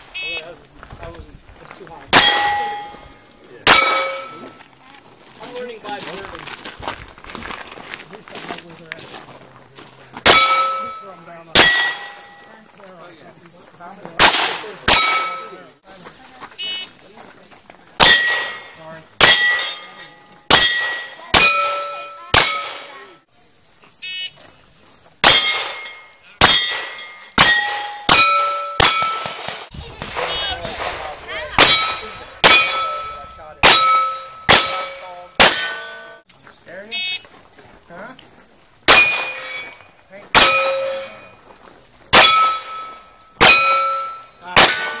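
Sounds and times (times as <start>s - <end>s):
steel target ringing: 2.1s - 4.6s, 10.2s - 12.5s, 14.2s - 15.6s, 18.0s - 23.1s, 25.2s - 29.7s, 31.6s - 36.2s, 38.9s - 41.3s, 42.1s - 45.0s
pistol shots: 3.6s - 4.4s, 11.6s - 12.2s, 14.2s - 15.6s, 18.0s - 23.1s, 25.2s - 36.0s, 38.9s - 39.7s, 42.1s - 45.0s.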